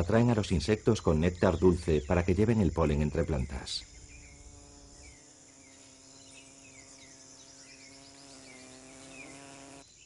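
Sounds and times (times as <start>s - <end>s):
high insect trill: 0.0s - 10.0s
insect buzz: 0.0s - 10.0s.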